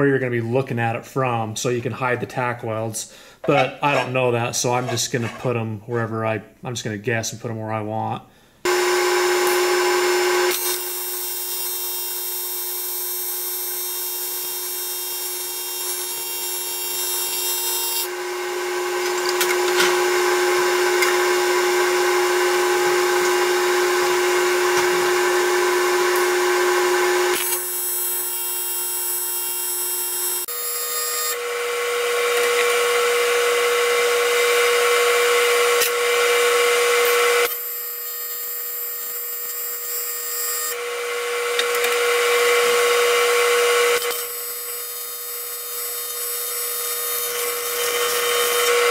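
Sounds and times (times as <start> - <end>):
welding arc buzzing: 8.7 - 32.9.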